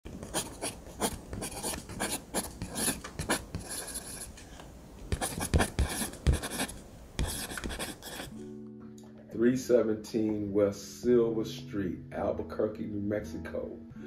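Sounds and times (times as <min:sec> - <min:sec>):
pen scratching on paper: 0:00.1 - 0:04.4, 0:05.1 - 0:08.4.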